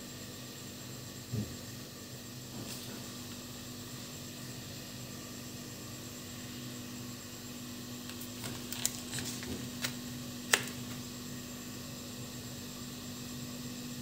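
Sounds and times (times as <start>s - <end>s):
steady low hum: 0.0s - 14.0s
cardboard clicks and rustles: 8.1s - 10.8s.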